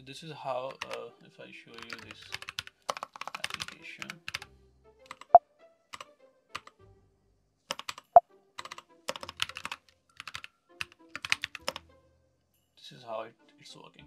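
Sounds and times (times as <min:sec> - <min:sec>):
mechanical keyboard typing: 0:00.7 - 0:01.0, 0:01.8 - 0:04.4, 0:05.1 - 0:05.4, 0:07.7 - 0:11.8.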